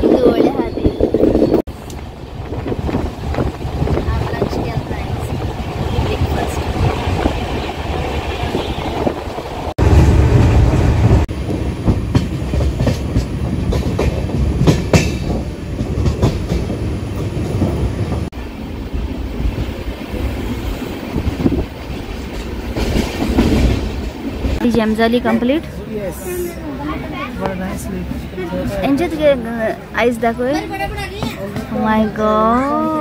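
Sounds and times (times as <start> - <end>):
train interior rumble: 0.0 - 33.0
wheels clacking over rail joints: 11.4 - 18.3, 19.4 - 25.8.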